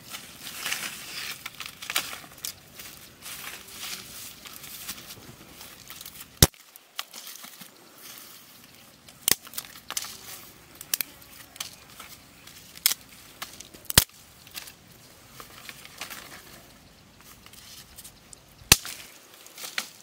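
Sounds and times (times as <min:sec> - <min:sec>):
sticks snapping: 0:00.6 - 0:02.9, 0:05.8 - 0:07.7, 0:09.1 - 0:14.8, 0:17.4 - 0:20.0.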